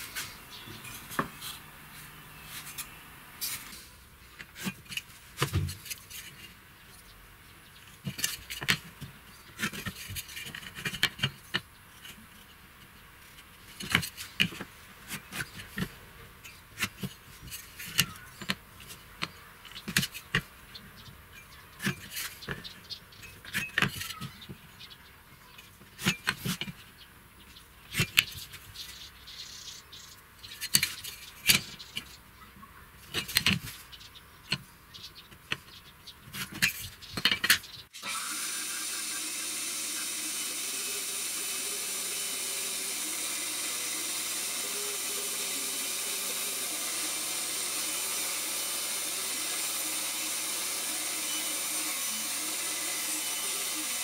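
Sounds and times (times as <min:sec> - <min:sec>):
band saw running: 0:38.0 - 0:54.0.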